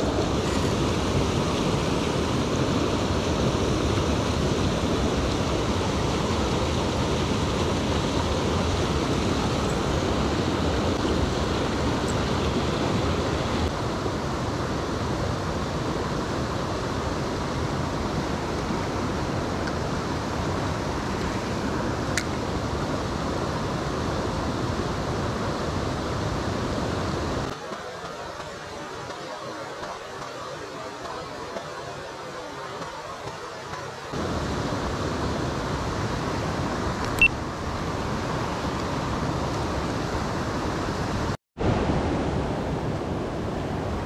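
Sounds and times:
fast-flowing stream rushing: 0:00.0 - 0:44.0.

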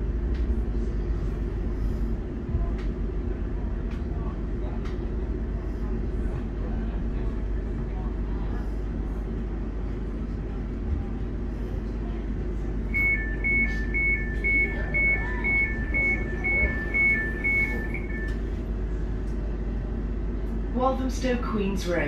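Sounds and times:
low hum of train: 0:00.0 - 0:22.0
two-tone door warning beeps: 0:12.9 - 0:18.5.

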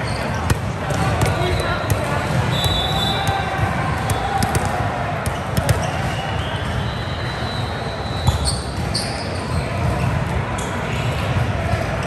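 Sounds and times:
indoor hall noise: 0:00.0 - 0:12.0
ball bounces and hits: 0:00.1 - 0:06.2, 0:08.2 - 0:09.2.

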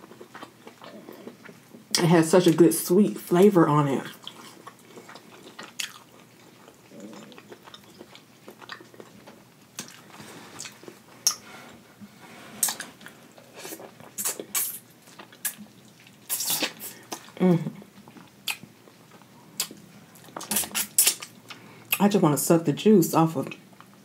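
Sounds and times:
wet chewing: 0:00.0 - 0:02.0, 0:04.1 - 0:11.4, 0:12.6 - 0:17.4, 0:18.0 - 0:22.0
lip smacks and mouth clicks: 0:09.8 - 0:10.0, 0:14.0 - 0:17.4, 0:18.1 - 0:22.0.

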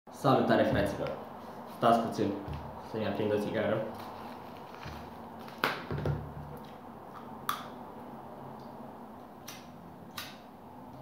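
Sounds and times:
cigarette pack rustling: 0:03.9 - 0:05.9.

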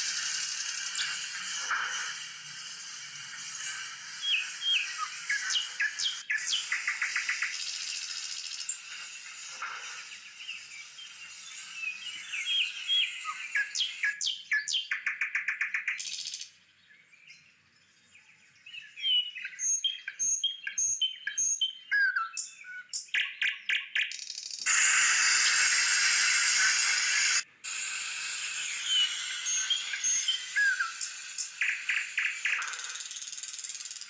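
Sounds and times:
loud steady hiss: 0:00.0 - 0:14.2, 0:24.6 - 0:34.0
small birds chirping: 0:03.6 - 0:24.8, 0:28.6 - 0:34.0.

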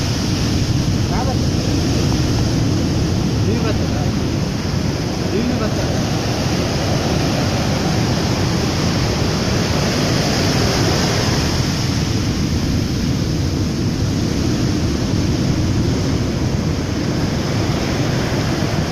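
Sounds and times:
storm waves crashing on beach: 0:00.0 - 0:18.9
wind buffeting microphone: 0:00.0 - 0:18.9.

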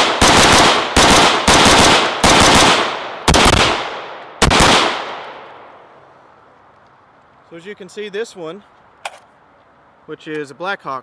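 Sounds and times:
rifle shots echoing: 0:00.0 - 0:05.8.

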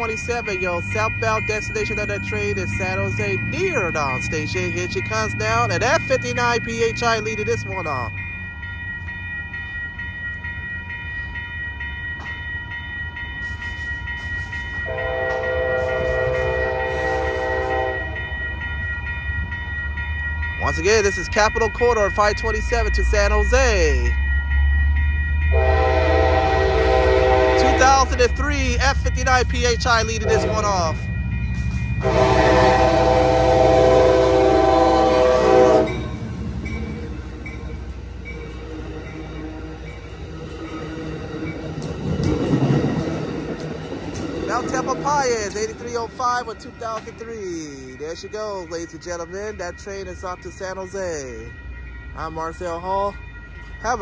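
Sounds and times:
locomotive rumble passing: 0:00.0 - 0:54.0
railroad crossing bell ringing: 0:00.0 - 0:54.0
locomotive air horn: 0:14.9 - 0:18.2, 0:25.5 - 0:28.0, 0:30.2 - 0:30.7, 0:32.0 - 0:36.0.

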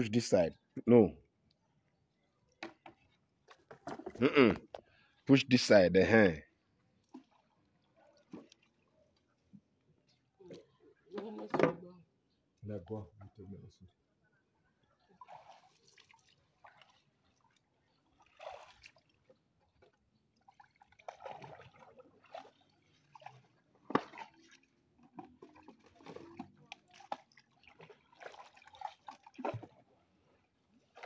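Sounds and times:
paddle sloshing in water: 0:06.7 - 0:09.6, 0:15.0 - 0:31.0.

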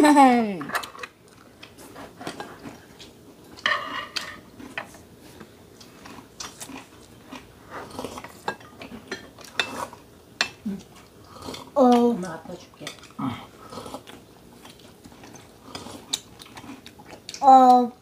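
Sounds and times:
tableware clinking: 0:03.6 - 0:04.5.

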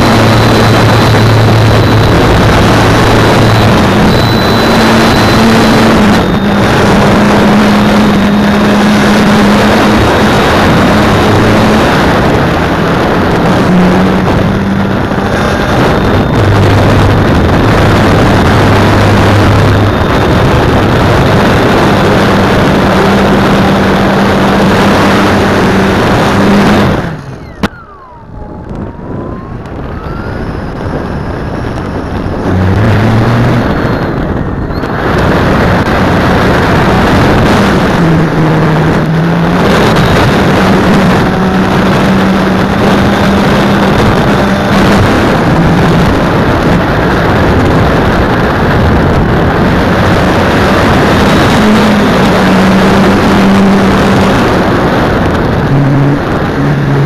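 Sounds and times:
model aircraft motor whining: 0:00.0 - 0:57.0
rush of air noise: 0:00.0 - 0:57.0.

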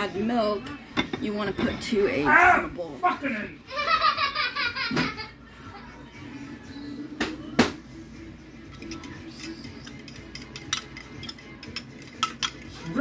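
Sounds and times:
fork clicking against ceramic bowl: 0:08.8 - 0:12.7.

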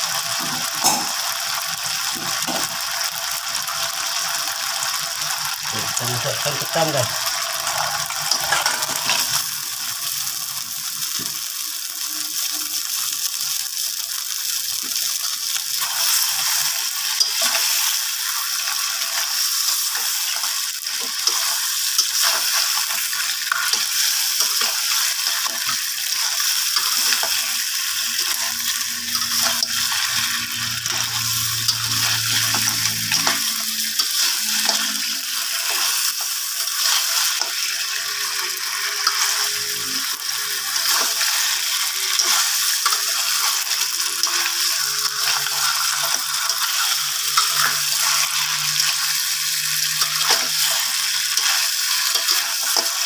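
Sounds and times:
crabs sizzling in a wok: 0:00.0 - 0:53.0
metal spatula scraping a wok: 0:19.2 - 0:53.0.

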